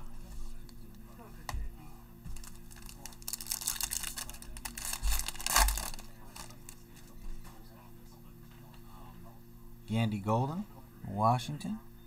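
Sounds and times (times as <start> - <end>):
foil wrapper crinkling and tearing: 2.4 - 6.8.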